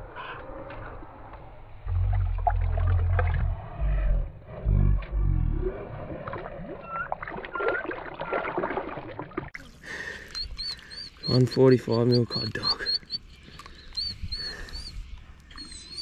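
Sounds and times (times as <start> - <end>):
water sloshing and gurgling: 0.0 - 11.6
faint chirps: 9.6 - 16.0
high chirp repeating quickly: 10.4 - 13.2.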